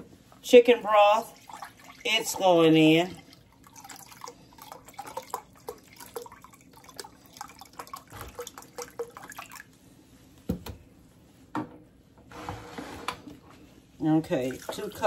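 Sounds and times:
broth pouring and splashing: 0:01.0 - 0:09.8, 0:14.3 - 0:15.0.

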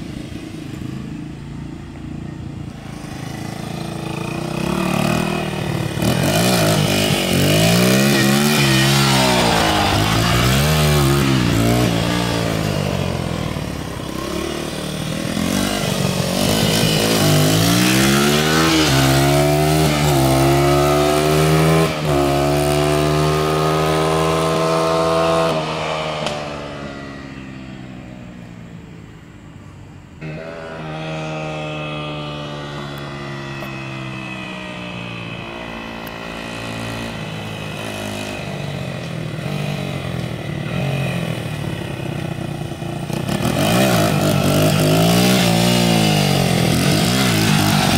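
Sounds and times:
dirt bike engine revving: 0:02.8 - 0:26.8, 0:35.3 - 0:47.9.

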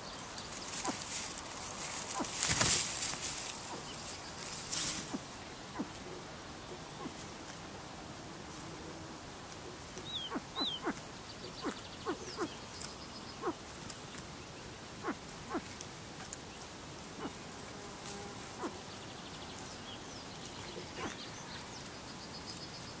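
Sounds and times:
clicks and crackles in dry leaves: 0:00.0 - 0:06.0, 0:09.4 - 0:17.4, 0:18.0 - 0:23.0
chicks peeping: 0:10.0 - 0:12.6.

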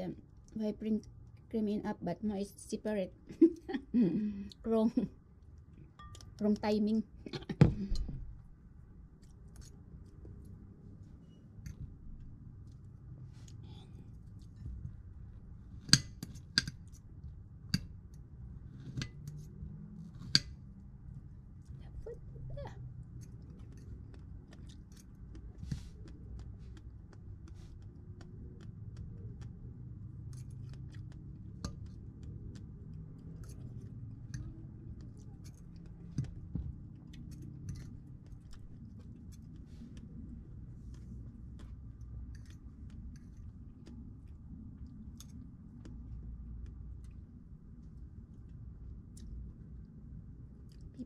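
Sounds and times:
low background rumble: 0:00.0 - 0:51.0
chewing: 0:22.8 - 0:51.0.

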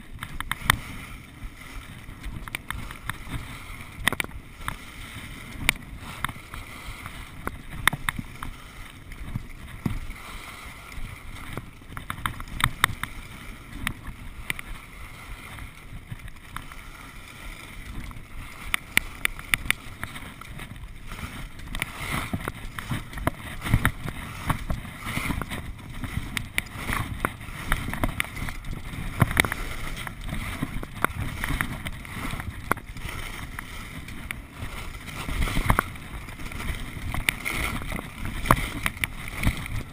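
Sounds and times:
low wind rumble: 0:00.0 - 0:39.9
skis scraping over packed snow: 0:00.0 - 0:39.9
sharp clicks and knocks: 0:00.1 - 0:00.8, 0:04.0 - 0:04.8, 0:07.4 - 0:08.5, 0:11.4 - 0:13.2, 0:18.0 - 0:34.4, 0:35.1 - 0:39.8.

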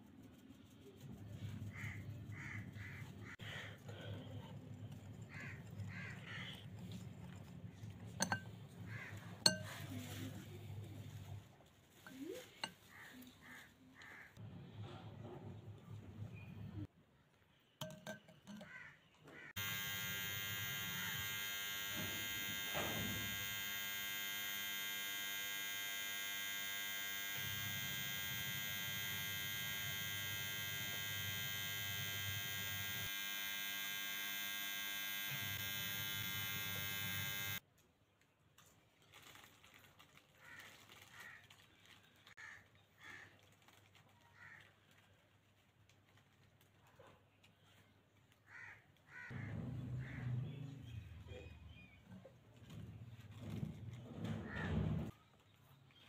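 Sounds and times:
electric buzz: 0:19.6 - 0:37.6.

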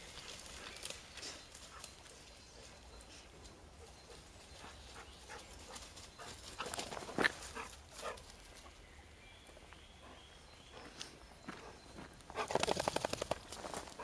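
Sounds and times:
dog paws on dry leaves: 0:00.0 - 0:02.7.

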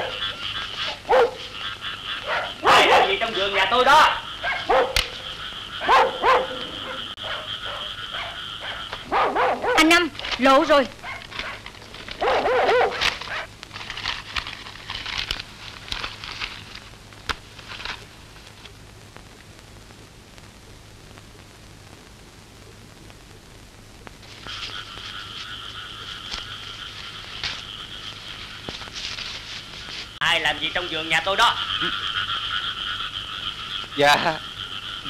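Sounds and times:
frogs croaking: 0:00.0 - 0:19.2, 0:24.2 - 0:35.0
two-pitched frog trill: 0:30.7 - 0:35.0.

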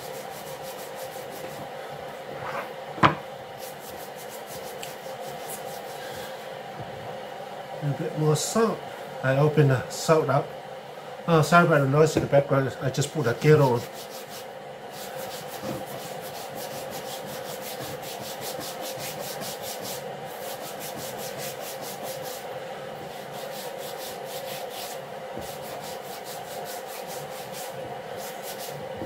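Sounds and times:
kettle humming: 0:01.5 - 0:03.6
hands rubbing salt into skin: 0:03.6 - 0:06.0, 0:13.6 - 0:22.4, 0:23.1 - 0:28.8.

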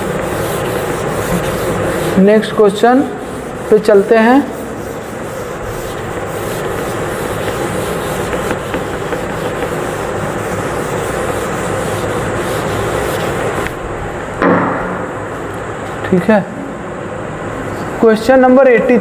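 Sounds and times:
chalkboard being wiped: 0:00.0 - 0:13.8.

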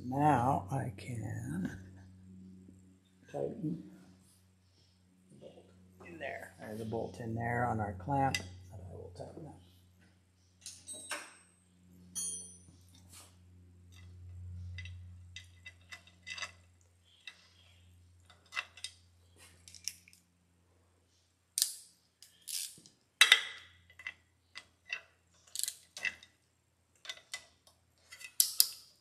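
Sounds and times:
faint low hum: 0:00.0 - 0:29.0
hand tools clinking on metal: 0:12.2 - 0:12.7.

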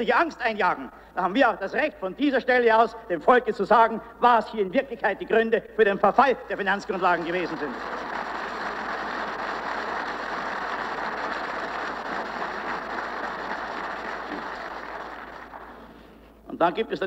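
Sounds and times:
applause: 0:06.7 - 0:16.4.

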